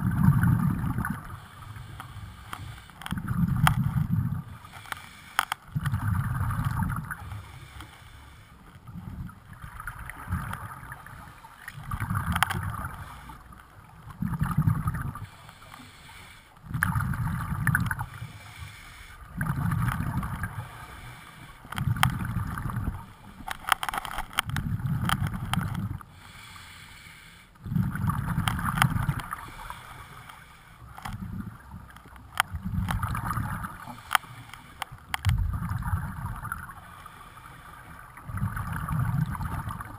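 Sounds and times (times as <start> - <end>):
gurgling exhaled bubbles: 0.0 - 1.3, 5.7 - 7.3, 8.9 - 13.1, 14.1 - 15.4, 16.6 - 18.2, 19.2 - 20.8, 21.7 - 23.1, 27.6 - 29.6, 32.5 - 34.0, 35.3 - 36.8, 38.2 - 39.9
regulator inhalations: 1.5 - 3.1, 4.6 - 5.6, 15.2 - 16.6, 18.1 - 19.3, 26.1 - 27.6
small clicks: 1.8 - 6.0, 12.2 - 13.1, 21.6 - 26.0, 28.4 - 31.3, 31.9 - 35.4.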